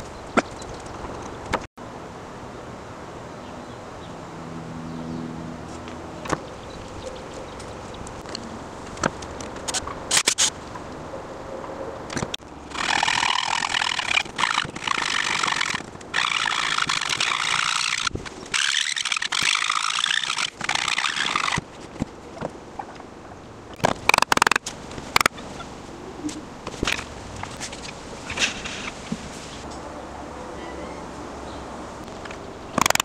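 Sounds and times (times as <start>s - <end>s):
sharp clicks and knocks: 23.7s - 25.4s, 32.0s - 33.0s.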